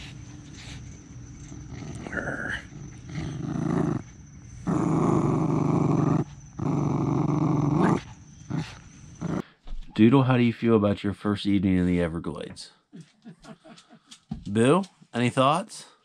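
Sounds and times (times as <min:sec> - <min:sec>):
dog growling playfully: 0:01.4 - 0:09.4.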